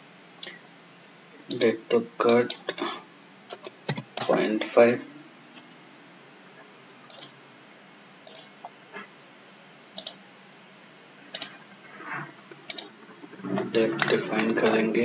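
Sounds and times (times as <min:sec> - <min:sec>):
computer mouse clicking: 0:10.0 - 0:10.2, 0:11.4 - 0:11.6, 0:12.7 - 0:12.9.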